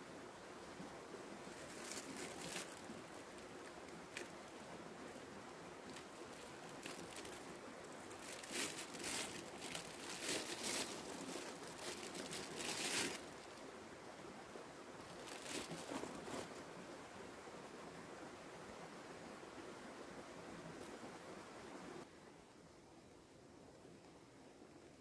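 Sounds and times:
faint steady hiss: 0.0s - 25.0s
crunching and rustling: 1.5s - 4.5s, 5.8s - 13.6s, 15.0s - 16.6s.

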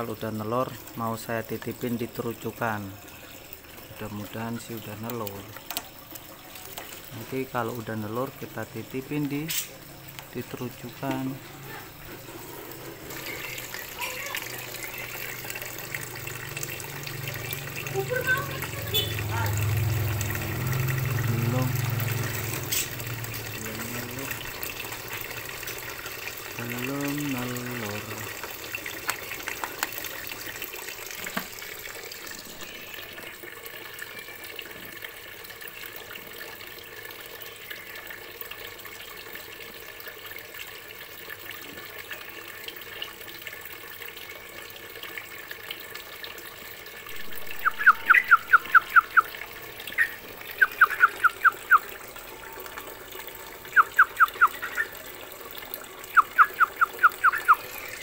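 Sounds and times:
songbird calling: 47.2s - 51.9s, 53.7s - 55.0s, 56.1s - 58.0s.

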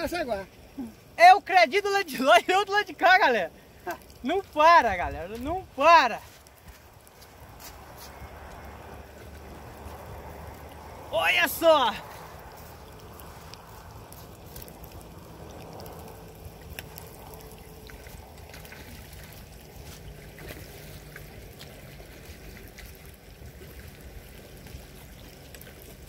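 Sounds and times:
river water: 0.0s - 26.0s
wind: 0.0s - 26.0s.

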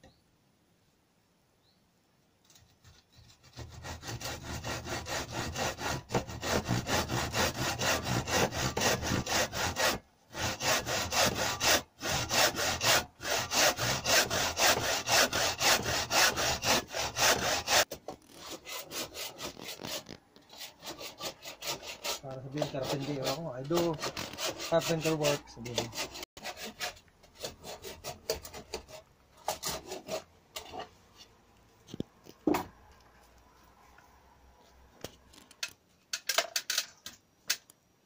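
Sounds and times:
hand saw cutting wood: 2.6s - 30.9s.

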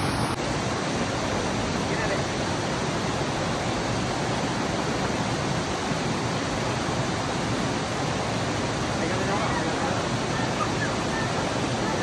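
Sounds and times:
river and waterfall rushing: 0.0s - 12.0s.

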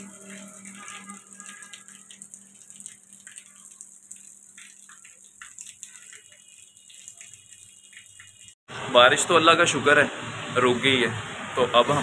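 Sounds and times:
rain dripping into puddles: 0.0s - 8.6s.

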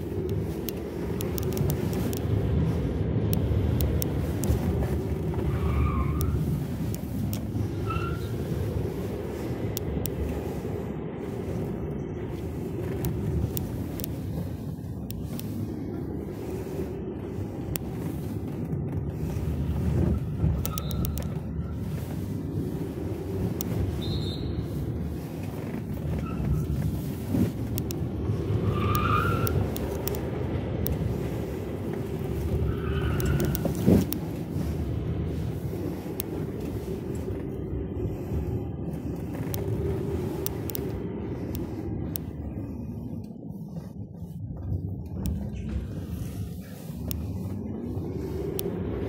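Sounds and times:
road and tyre rumble: 0.0s - 49.0s
small clicks: 0.2s - 2.4s, 20.4s - 21.4s, 25.8s - 28.2s, 28.8s - 34.4s, 39.2s - 42.3s.

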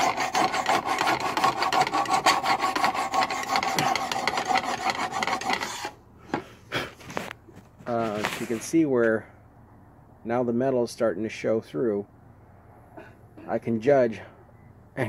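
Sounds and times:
hand file rasping on metal: 0.0s - 6.0s.

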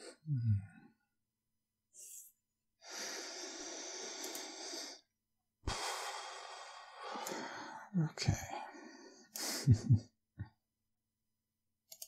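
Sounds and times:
man breathing deeply: 2.8s - 9.9s.

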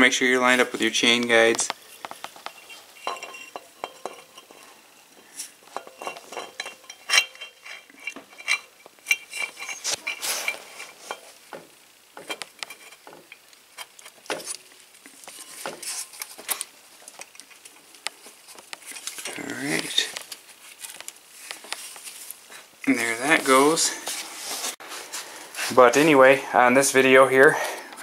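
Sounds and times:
metal chain clinking and rattling: 1.9s - 4.8s, 5.7s - 11.3s.

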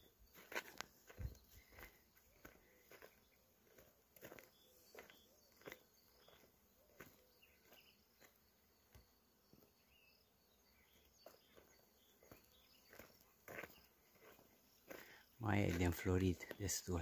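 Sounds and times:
faint high chirps: 4.3s - 17.0s.

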